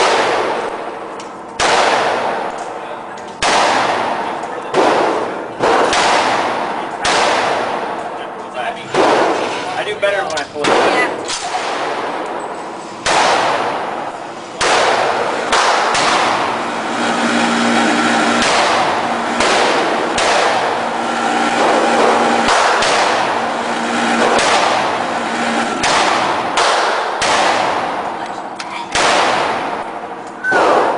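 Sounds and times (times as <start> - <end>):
rifle shots echoing indoors: 0.0 - 2.7, 3.4 - 8.1, 10.6 - 12.4, 13.0 - 25.1, 25.8 - 28.0, 28.9 - 30.9.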